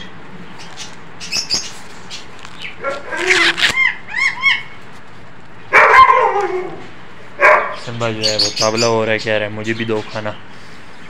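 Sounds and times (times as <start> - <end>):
small bird chirps: 0.6 - 4.7
dog barking and yelping: 2.8 - 4.8, 5.7 - 7.9.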